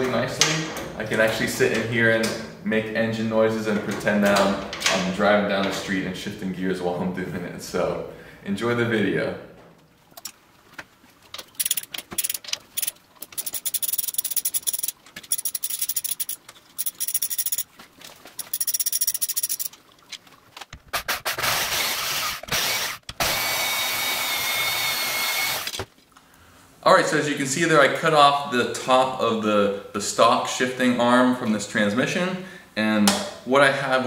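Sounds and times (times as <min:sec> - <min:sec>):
ratchet wrench clicking: 0:11.6 - 0:17.6, 0:18.4 - 0:19.7.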